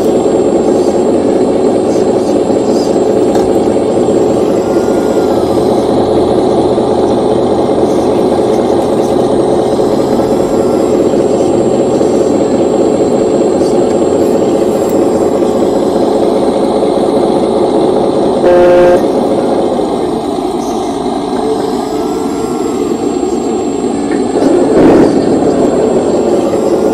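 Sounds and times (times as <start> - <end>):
hydraulic pump hum: 0.0 - 26.9
brief loud tone: 4.4 - 5.8, 18.4 - 19.1.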